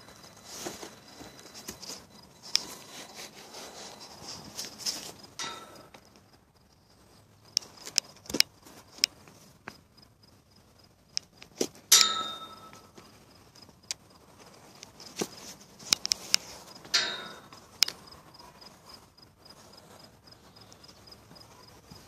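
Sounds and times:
rope halter handling noise: 0.0s - 6.4s, 11.2s - 18.1s
metallic clink: 5.4s - 6.1s, 11.9s - 13.0s, 16.9s - 18.0s.

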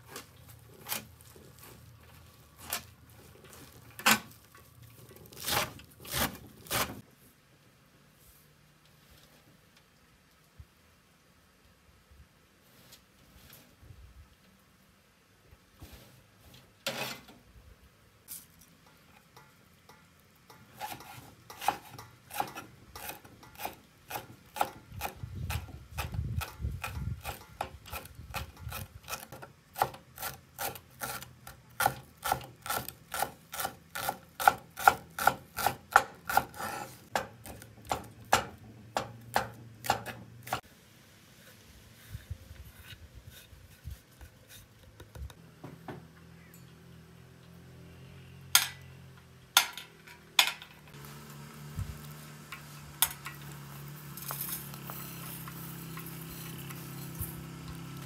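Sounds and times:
knife chopping on wooden board: 31.8s - 40.6s.

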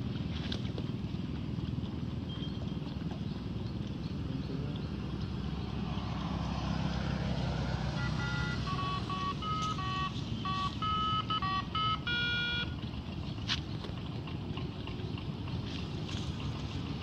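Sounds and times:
steady low rumble: 0.0s - 17.0s
short electronic beeps tune: 8.0s - 12.8s.

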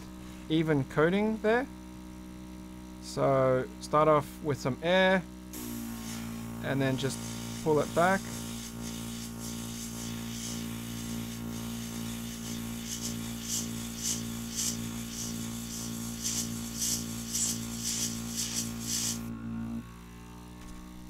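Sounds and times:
compressor humming: 0.0s - 21.0s
airbrush spraying hiss: 5.6s - 19.3s.

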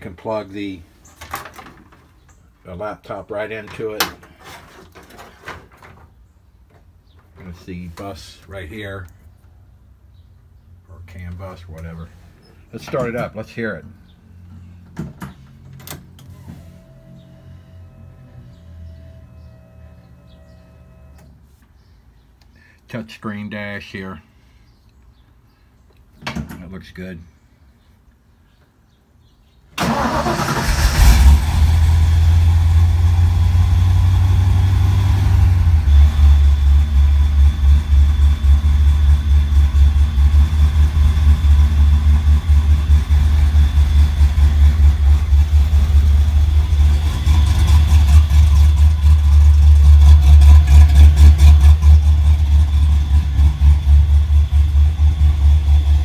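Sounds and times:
engine starting and idling: 29.8s - 56.0s.

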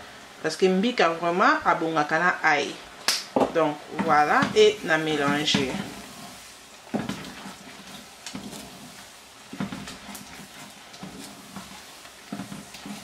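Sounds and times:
wooden spoon scraping a pan: 3.5s - 13.0s.

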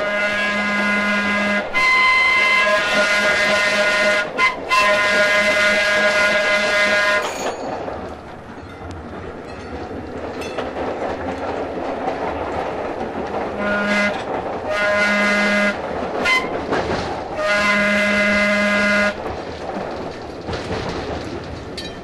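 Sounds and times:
train whistle blasts: 0.0s - 7.4s, 13.6s - 16.6s, 17.4s - 19.2s
rumble of moving rail car: 0.0s - 22.0s
rail joints clattering: 5.6s - 22.0s.

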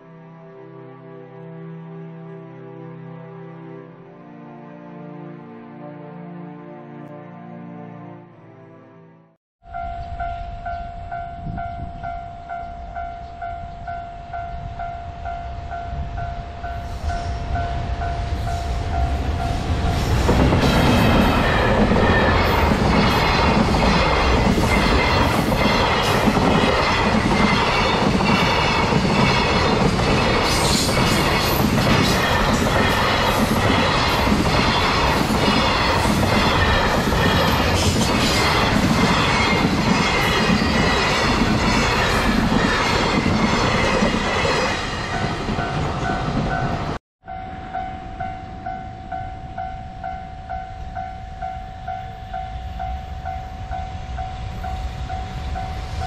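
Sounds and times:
level crossing warning bell: 9.6s - 20.0s, 45.2s - 56.0s
train wheels clattering on rails: 18.3s - 47.0s.

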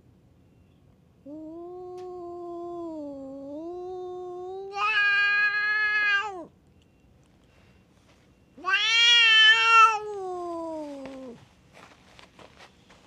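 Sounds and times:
cat yowling: 1.3s - 6.5s, 8.6s - 11.4s.

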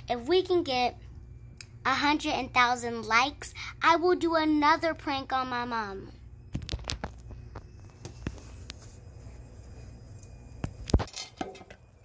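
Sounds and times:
low hum: 6.0s - 12.0s.

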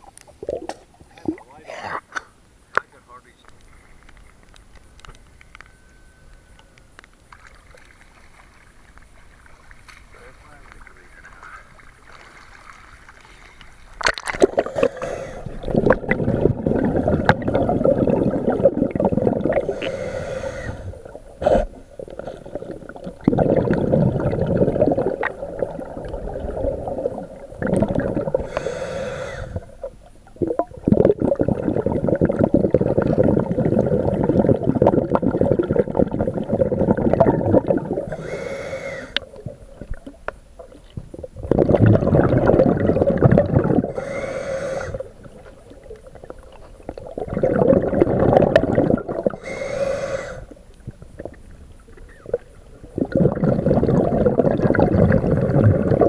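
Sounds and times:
bubbling exhalations underwater: 0.0s - 2.1s, 14.0s - 50.6s, 51.2s - 56.0s
hissing regulator inhalations: 14.5s - 16.5s, 19.5s - 21.8s, 28.3s - 29.8s, 38.0s - 39.3s, 43.8s - 45.3s, 49.3s - 50.6s.

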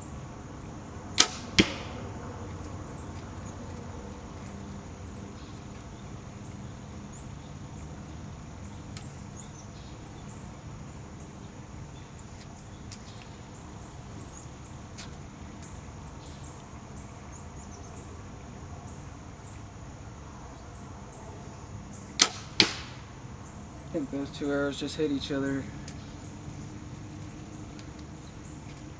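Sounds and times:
insects chirping: 0.0s - 28.9s
bowstring snapping: 1.2s - 2.0s, 22.2s - 23.0s
arrow striking target: 1.2s - 2.1s, 22.2s - 23.1s.

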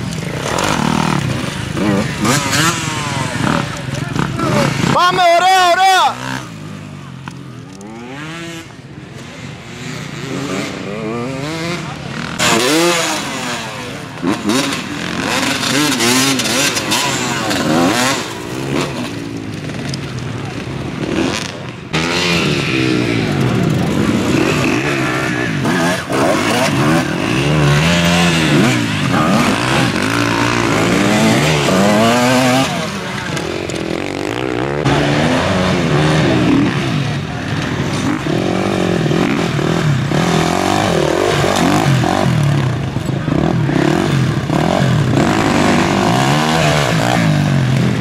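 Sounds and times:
motorcycle engines revving: 0.0s - 48.0s.

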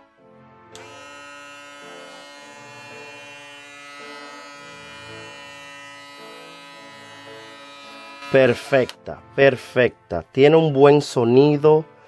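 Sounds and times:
electric shaver buzzing: 0.7s - 9.0s.

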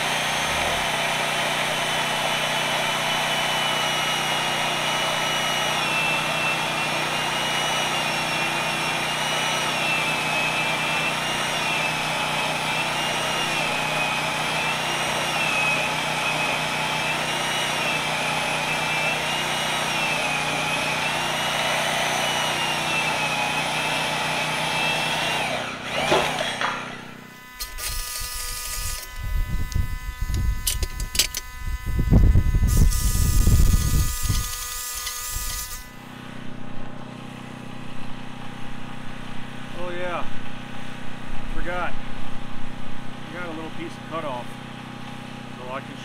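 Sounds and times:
circular saw cutting steel: 0.0s - 36.2s.

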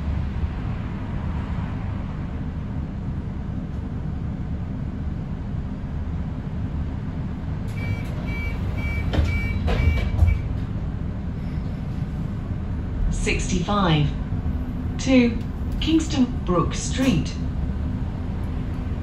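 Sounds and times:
bus low rumble: 0.0s - 19.0s
bus doors clunking: 7.6s - 12.6s, 15.1s - 19.0s
door warning beeps: 7.7s - 10.5s.

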